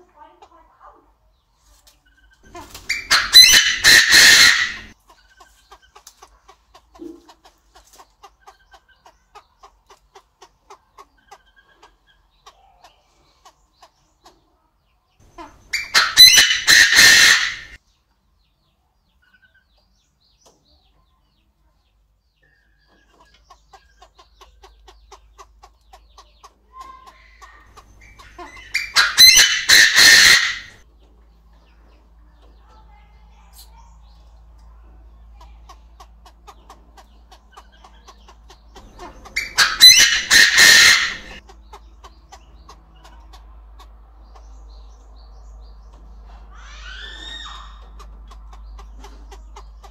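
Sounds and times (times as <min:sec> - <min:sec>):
francolin harsh crowing: 0:02.9 - 0:05.0, 0:28.7 - 0:30.8, 0:39.4 - 0:41.4, 0:46.5 - 0:47.8.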